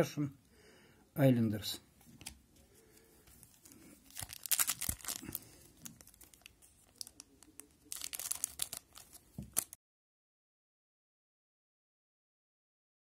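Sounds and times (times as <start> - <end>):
foil wrapper tearing and crinkling: 3.6 - 9.8.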